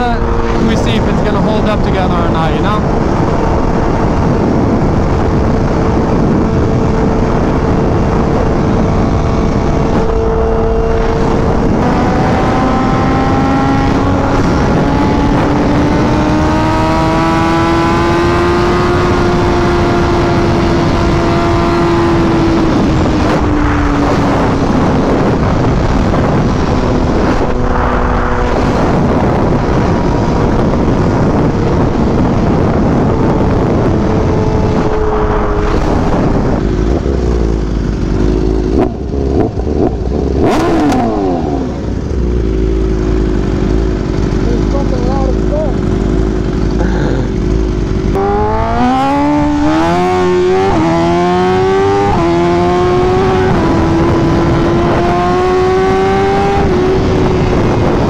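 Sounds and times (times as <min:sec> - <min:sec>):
motorcycle engine running: 0:00.0 - 0:58.0
wind rush on microphone: 0:00.0 - 0:58.0.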